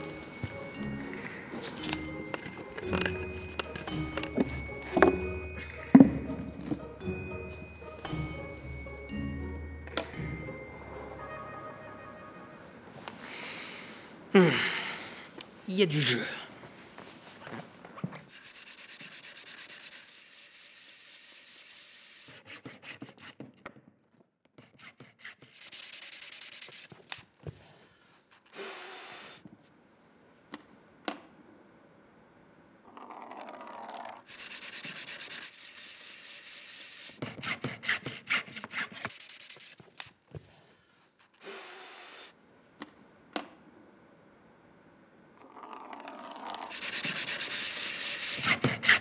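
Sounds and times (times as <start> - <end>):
sandpaper rubbing back and forth: 18.3 - 23.4, 24.6 - 27.1, 34.2 - 40.1, 46.6 - 49.0.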